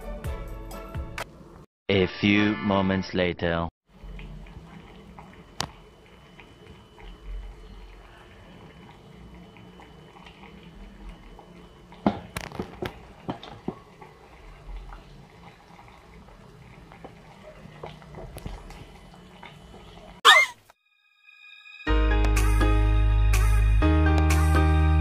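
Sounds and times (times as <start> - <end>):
pot of soup simmering: 3.9 - 20.2.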